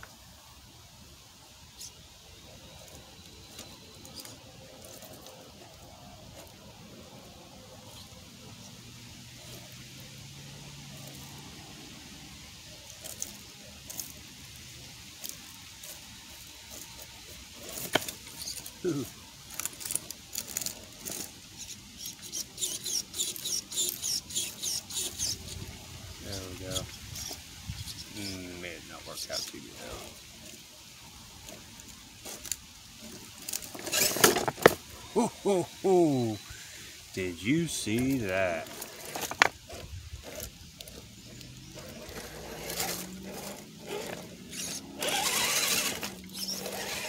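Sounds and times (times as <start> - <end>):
faint motor whine: 0.0 - 47.0
small electric motor whirring: 12.9 - 25.7, 38.0 - 47.0
scraping and rustling: 15.1 - 21.4, 29.2 - 35.0, 37.9 - 47.0
rapid high squeaks: 17.6 - 25.6, 31.5 - 34.7, 38.4 - 47.0
wind noise on microphone: 26.8 - 28.1.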